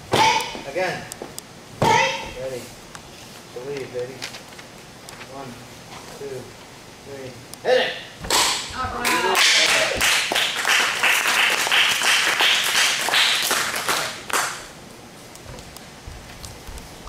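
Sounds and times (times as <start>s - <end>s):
person shouting: 1.8s - 2.4s
punch hitting target pad: 8.2s - 8.8s
audience clapping: 9.0s - 14.7s.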